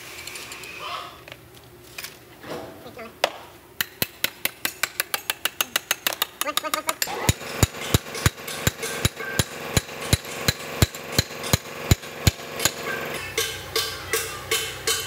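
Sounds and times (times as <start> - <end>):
hammer striking steel punch: 3.8 - 15.0.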